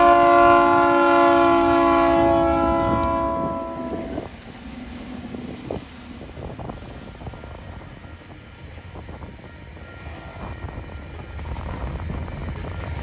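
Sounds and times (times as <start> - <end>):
locomotive air horn chord: 0.0 - 4.3, 9.8 - 10.8
train rumbling past: 0.0 - 13.0.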